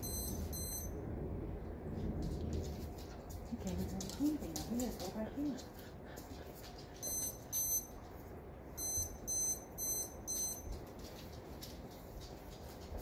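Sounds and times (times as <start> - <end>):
high-pitched electronic beeps: 0.0 - 0.9.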